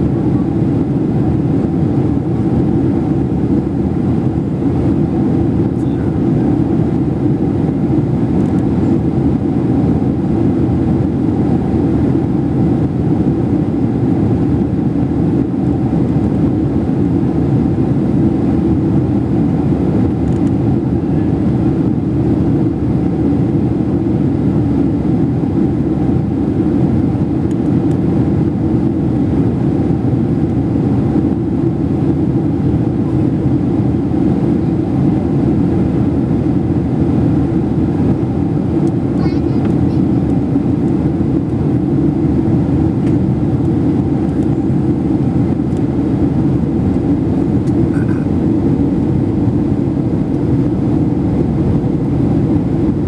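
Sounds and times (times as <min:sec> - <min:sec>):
airliner engine drone and air rush: 0:00.0 - 0:53.0.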